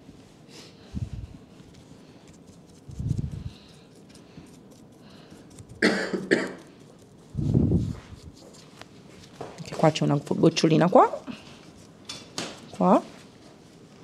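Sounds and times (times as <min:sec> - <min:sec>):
person coughing: 0:05.8 - 0:06.7.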